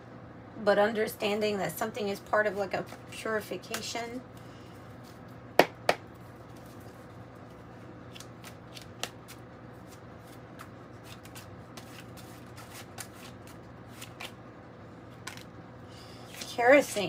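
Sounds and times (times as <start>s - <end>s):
cards being shuffled: 5.9s - 14.4s, 15.1s - 15.5s.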